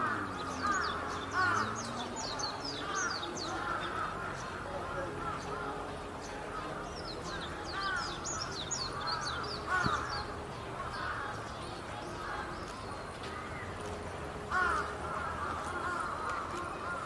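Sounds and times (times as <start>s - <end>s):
crows cawing: 0.0s - 2.0s, 2.8s - 5.8s, 6.5s - 11.5s, 14.5s - 17.0s
murmur of distant voices: 0.0s - 17.0s
small birds chirping: 0.0s - 17.0s.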